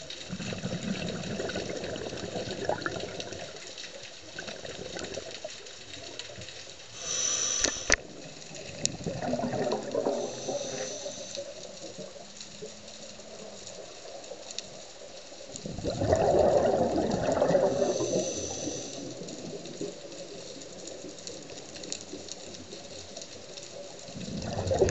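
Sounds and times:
exhaled bubbles underwater: 0:00.0 - 0:06.4, 0:07.0 - 0:24.9
regulator inhale hiss: 0:06.9 - 0:08.0, 0:10.0 - 0:11.6, 0:17.7 - 0:19.2
sharp clicks: 0:07.1 - 0:08.0.

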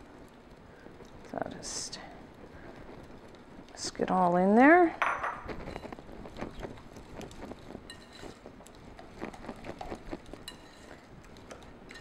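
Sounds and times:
whisk wires clinking on glass bowl: 0:07.9 - 0:08.4, 0:10.4 - 0:10.9.

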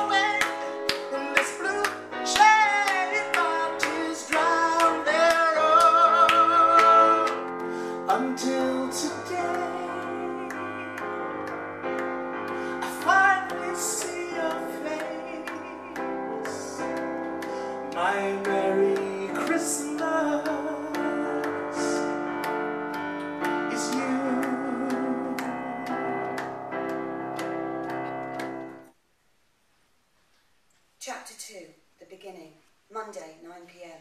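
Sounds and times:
man singing slow song: 0:00.0 - 0:11.6, 0:12.5 - 0:22.4, 0:23.4 - 0:26.4
ticking beat: 0:00.0 - 0:28.9
sustained keyboard accompaniment: 0:00.0 - 0:29.0.

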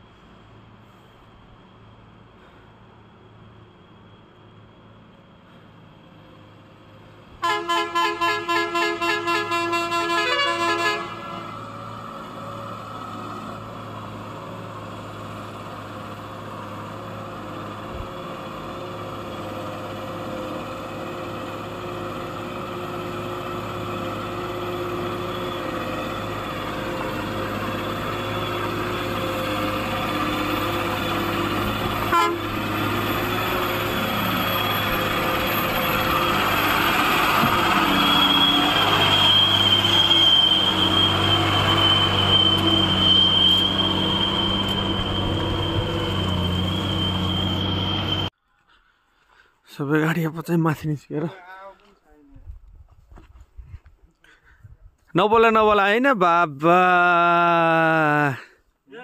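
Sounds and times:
truck horn beeping rapidly: 0:07.4 - 0:11.6, 0:31.9 - 0:32.6
truck engine running: 0:11.2 - 0:48.3.

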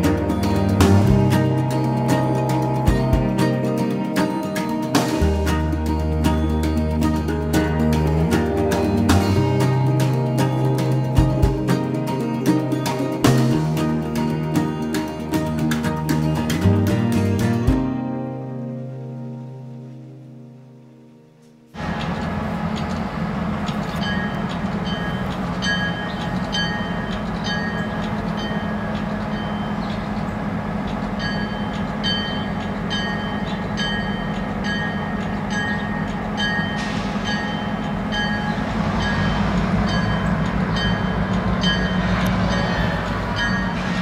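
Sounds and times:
low droning rumble: 0:36.2 - 0:44.0.

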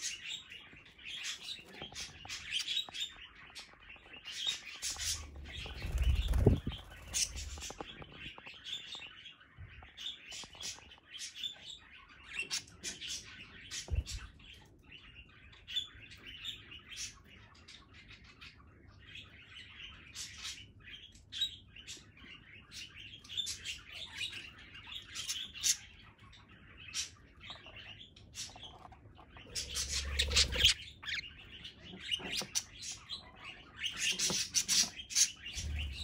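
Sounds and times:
budgerigars chirping: 0:00.0 - 0:08.1, 0:19.3 - 0:36.0
wing flapping: 0:05.6 - 0:07.6.

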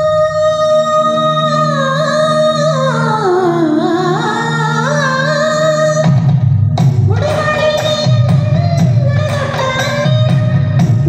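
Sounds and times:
song with singing: 0:00.0 - 0:11.0
repeated bass notes: 0:05.8 - 0:11.0.

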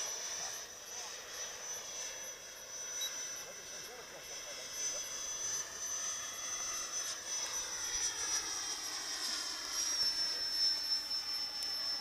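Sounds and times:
model jet fan whining: 0:00.0 - 0:12.0.

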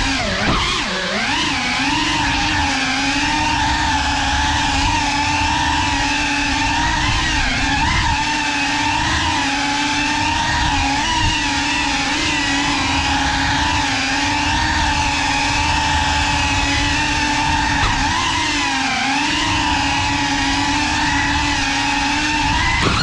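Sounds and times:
drone motors whining: 0:00.0 - 0:23.0.

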